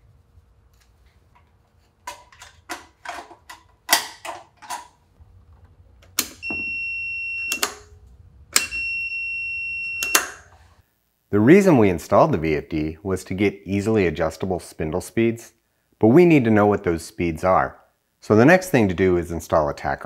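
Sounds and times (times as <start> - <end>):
continuity tester beeping: 6.4 - 7.9, 8.6 - 10.4.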